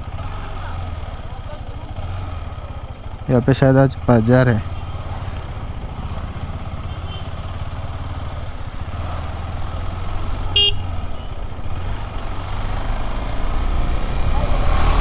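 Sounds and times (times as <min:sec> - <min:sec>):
motorcycle engine running: 0:00.0 - 0:15.0
horn toot: 0:10.5 - 0:10.9.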